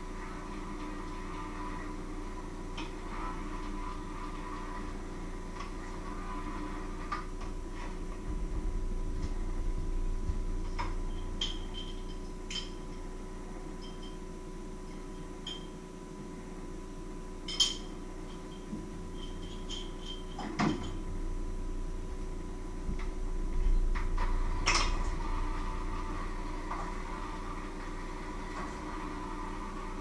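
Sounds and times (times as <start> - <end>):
steady hum: 0.0 - 30.0
dishes and utensils clinking: 10.8 - 13.1, 17.4 - 21.1.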